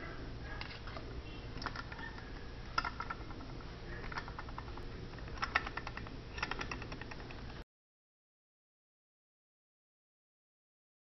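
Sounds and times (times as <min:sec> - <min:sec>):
low steady hum: 0:00.0 - 0:07.6
small metal clicks and taps: 0:02.8 - 0:07.5.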